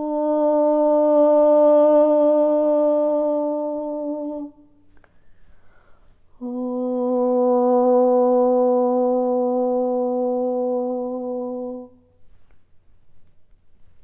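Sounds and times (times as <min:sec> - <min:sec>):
woman humming held note: 0:06.4 - 0:12.0.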